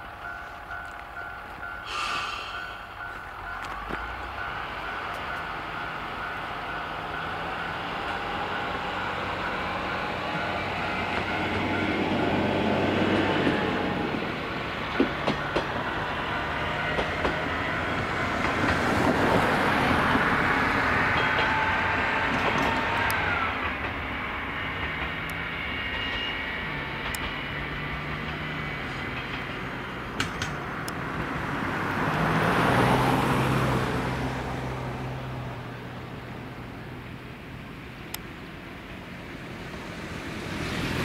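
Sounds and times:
diesel railcar engine humming: 0.0s - 41.0s
wheels clicking over rail joints: 21.0s - 24.1s, 26.9s - 31.2s.

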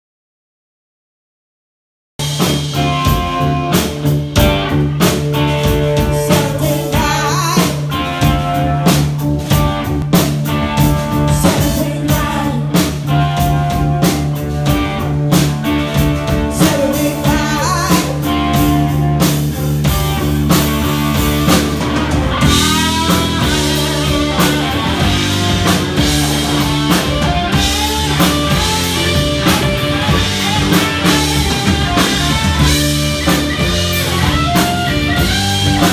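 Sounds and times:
electric guitar lead with bent notes: 2.2s - 35.9s
live rock band playing: 2.2s - 35.9s
woman singing: 6.1s - 7.8s, 11.3s - 13.0s, 16.5s - 18.3s.

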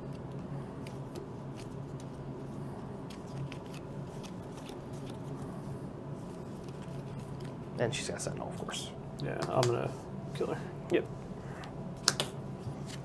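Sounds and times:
low room hum: 0.0s - 13.0s
trading cards being handled: 0.1s - 5.6s, 6.2s - 7.6s.

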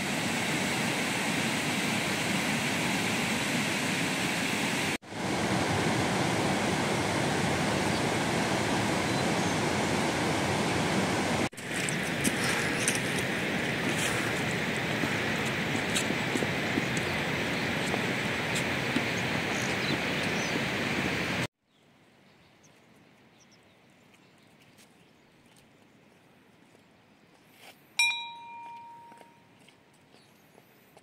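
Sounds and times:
steady outdoor hiss: 0.0s - 24.4s, 25.1s - 31.0s
metal bell ringing: 28.0s - 29.5s.

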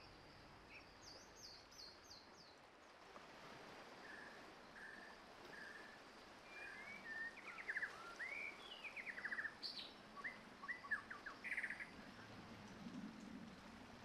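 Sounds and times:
faint steady background hiss: 0.0s - 14.0s
birds singing: 6.6s - 12.0s.

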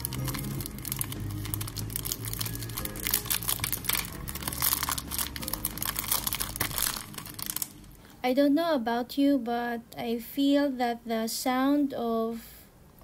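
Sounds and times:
plastic wrapper crinkling: 0.0s - 8.1s.

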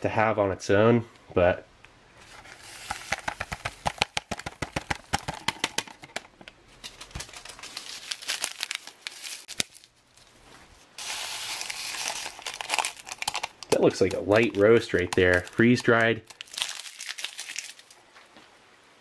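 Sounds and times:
steady rustling hiss: 0.1s - 16.4s
plastic sachets crinkling: 2.2s - 10.4s, 11.0s - 18.0s
packet being torn open: 2.4s - 10.0s, 11.0s - 18.0s.

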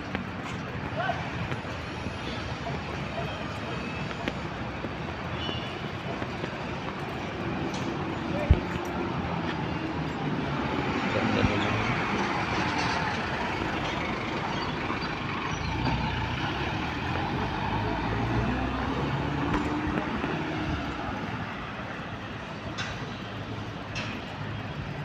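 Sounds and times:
steady traffic noise: 0.0s - 25.0s.

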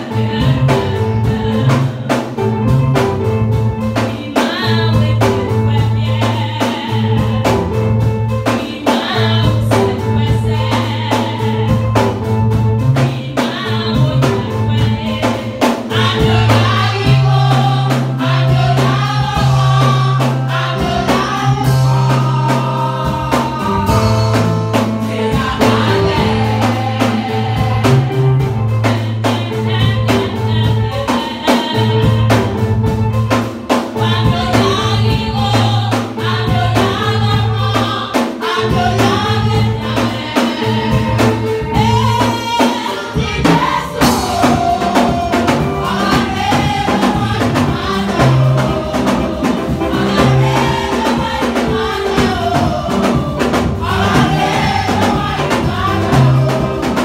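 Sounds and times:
gospel choir singing: 0.0s - 57.0s
bass line: 0.2s - 4.0s, 9.2s - 31.1s, 43.2s - 57.0s
drum beat: 6.3s - 57.0s.

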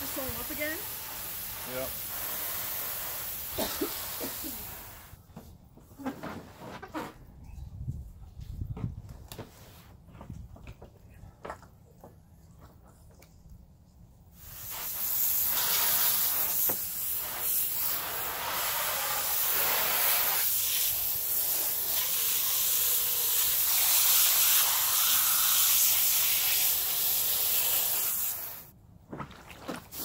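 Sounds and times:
hose nozzle spraying water: 0.0s - 5.2s, 14.4s - 28.7s.

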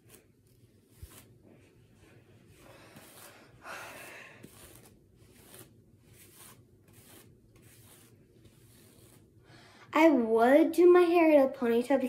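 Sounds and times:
hairbrush swishing through hair: 0.0s - 9.4s.

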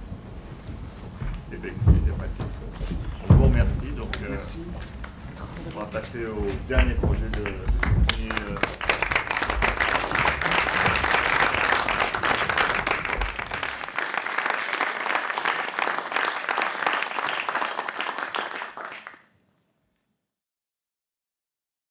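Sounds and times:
audience applauding: 4.2s - 19.2s.

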